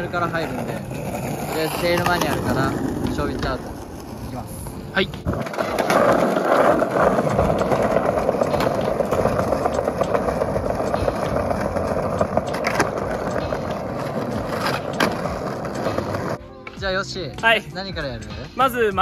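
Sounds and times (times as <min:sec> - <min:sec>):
skateboard wheels rolling on stone: 0:00.0 - 0:16.4
skateboard clacks: 0:00.2 - 0:04.2, 0:05.2 - 0:16.4.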